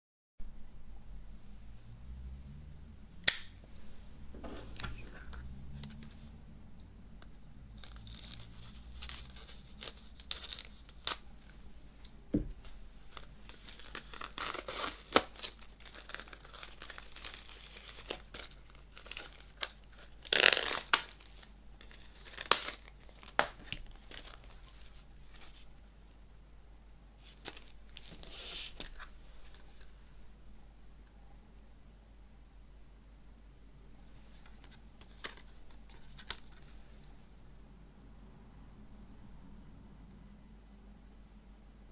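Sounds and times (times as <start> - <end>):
plastic wrap crinkling: 7.8 - 11.7, 13.0 - 25.7, 27.2 - 29.9.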